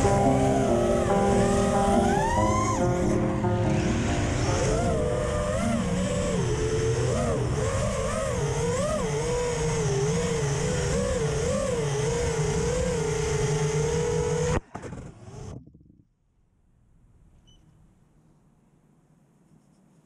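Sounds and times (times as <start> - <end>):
drone hitting pavement: 0.0 - 8.1
drone motors whining: 0.0 - 15.6.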